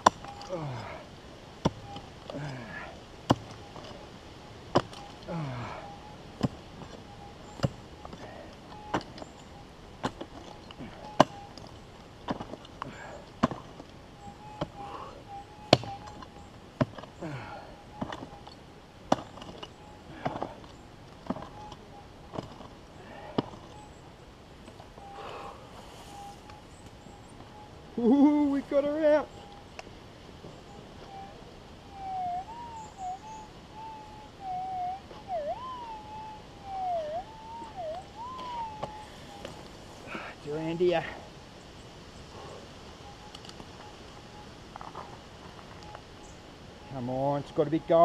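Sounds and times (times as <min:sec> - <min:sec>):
metal detector swooping tone: 0:31.0 - 0:40.9.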